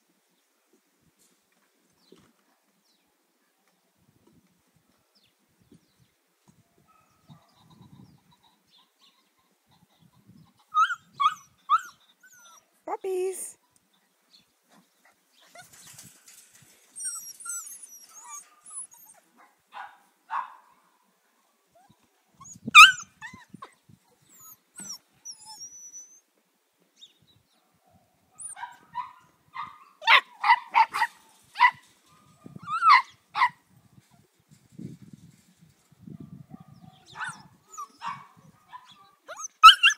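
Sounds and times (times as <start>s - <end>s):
puppies high barks: 18.0s - 20.8s, 22.8s - 23.2s, 28.4s - 33.6s, 36.6s - 39.9s
puppy yelping: 22.4s - 23.5s, 24.4s - 26.2s, 32.6s - 33.5s, 39.3s - 39.9s.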